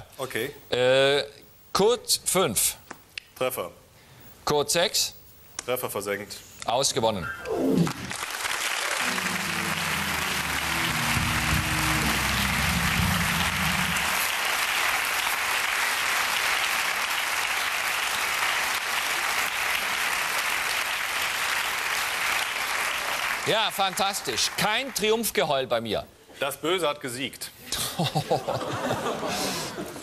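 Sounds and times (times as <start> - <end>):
studio audience applauding: 7.8 - 25.4
musical sting of low chords: 8.9 - 14.3.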